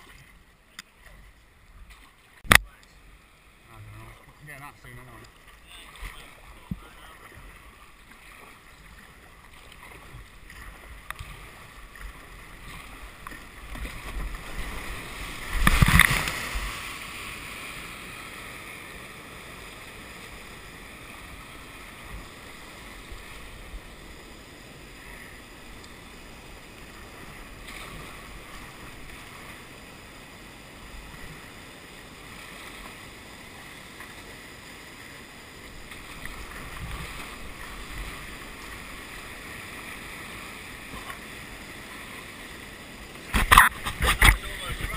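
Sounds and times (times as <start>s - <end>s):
paddle strokes: 0.0s - 23.9s, 35.0s - 44.9s
loud splash: 13.8s - 17.0s.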